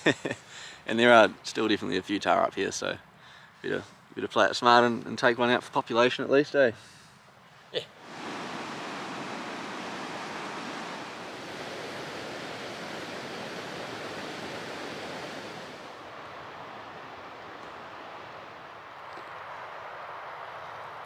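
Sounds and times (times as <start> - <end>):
steady rushing noise: 8.0 - 21.0.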